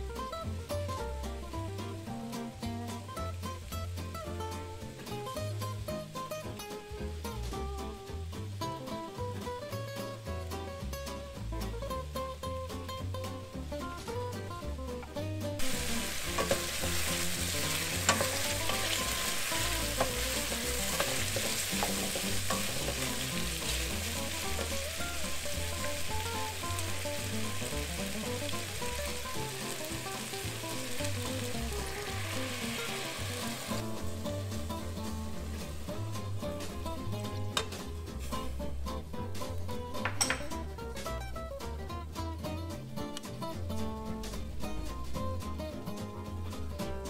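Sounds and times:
chicken sizzling in a pot: 0.0s - 41.8s
soft guitar music: 0.0s - 47.0s
sauce pouring: 15.6s - 38.1s
wooden spoon knocking a pot: 17.7s - 24.7s, 40.0s - 40.7s.

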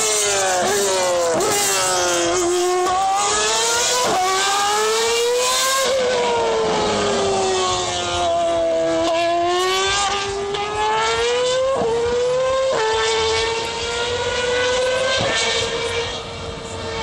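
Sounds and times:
race car engine revving: 0.0s - 17.0s.

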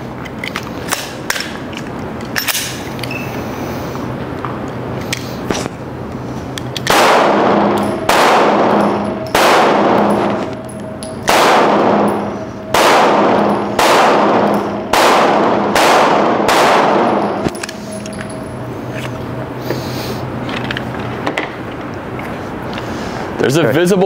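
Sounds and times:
pistol shots echoing indoors: 6.8s - 18.7s.

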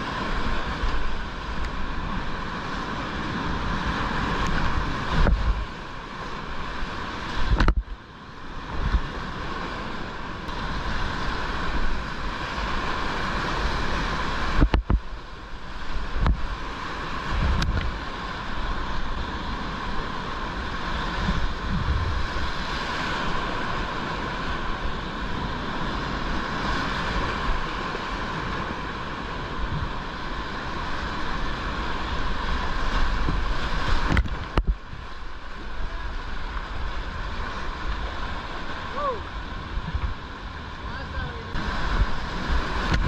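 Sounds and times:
paddle strokes splashing water: 8.5s - 43.0s
whitewater rapids rushing: 8.9s - 43.0s.

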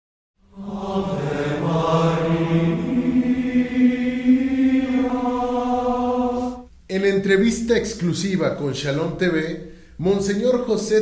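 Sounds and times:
long held chant-like notes: 0.4s - 6.7s.

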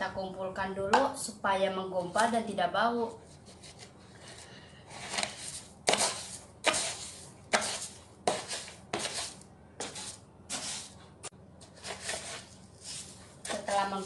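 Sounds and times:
scoop scraping through cat litter: 4.3s - 11.0s, 11.8s - 14.0s.

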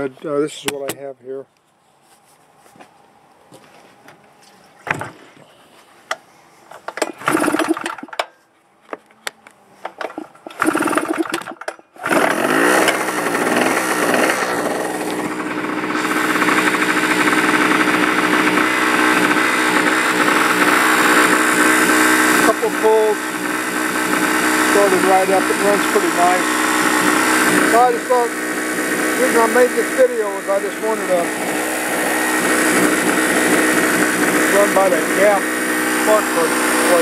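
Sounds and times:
generator engine running: 6.9s - 8.2s, 9.9s - 37.0s.

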